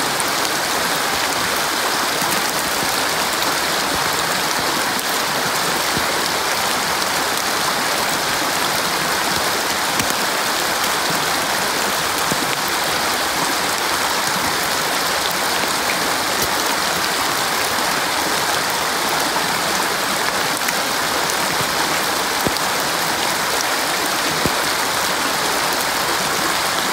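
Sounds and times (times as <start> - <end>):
stream flowing over stones: 0.0 - 26.9.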